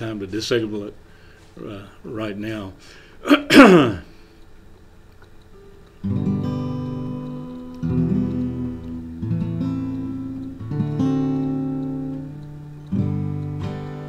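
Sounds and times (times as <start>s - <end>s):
acoustic guitar strumming chords: 5.6s - 14.0s.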